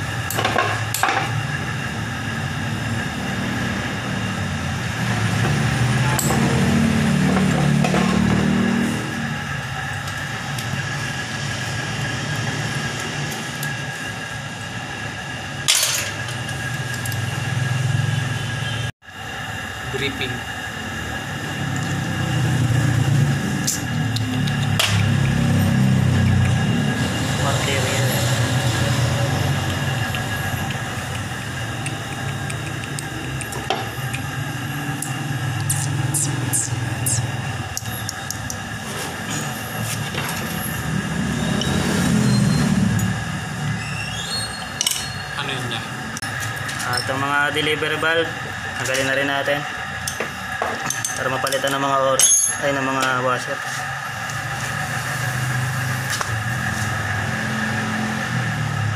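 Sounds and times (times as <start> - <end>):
low mechanical hum: 0.0 - 58.9.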